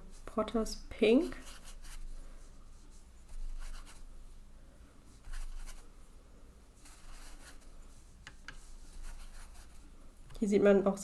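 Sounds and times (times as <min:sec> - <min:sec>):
brush rubbing over paper: 0:01.1 - 0:04.1, 0:05.0 - 0:05.9, 0:06.8 - 0:09.9.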